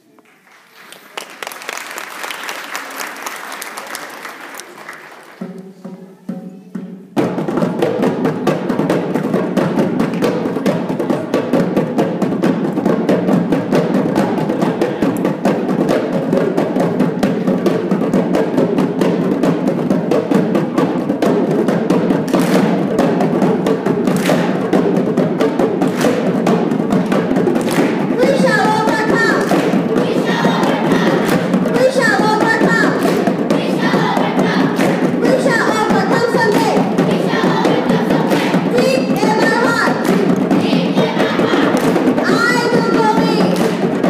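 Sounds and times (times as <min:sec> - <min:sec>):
applause: 0:00.0 - 0:05.6, 0:22.3 - 0:22.6, 0:27.6 - 0:28.0
hand drums fast rhythm: 0:05.4 - 0:44.0.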